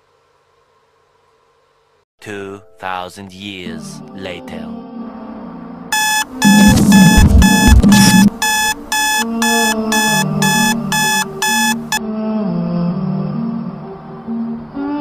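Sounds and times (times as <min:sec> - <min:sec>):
phone alarm beeping: 0:05.9 - 0:12.0.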